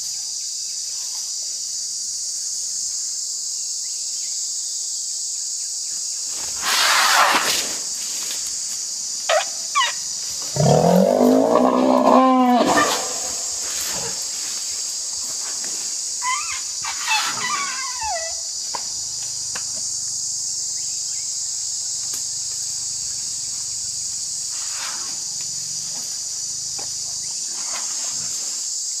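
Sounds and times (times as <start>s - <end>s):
chorus of forest insects: 0.0s - 29.0s
falling animal calls: 9.3s - 14.2s, 16.2s - 18.5s.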